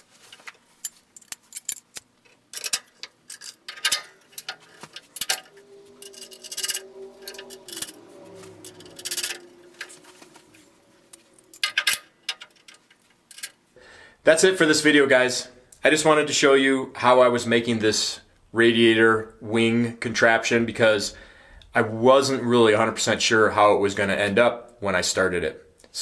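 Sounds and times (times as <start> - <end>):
metal panel clicks and clinks: 0.9 - 4.6, 11.6 - 13.6
steady hum: 3.3 - 12.8.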